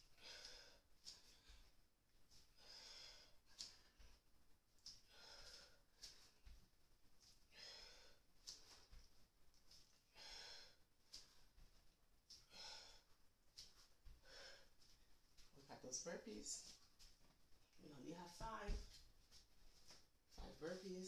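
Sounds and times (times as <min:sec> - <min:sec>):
person breathing hard: 0:00.0 - 0:01.8, 0:02.4 - 0:04.2, 0:04.9 - 0:06.5, 0:07.5 - 0:08.9, 0:10.1 - 0:11.6, 0:12.3 - 0:14.9.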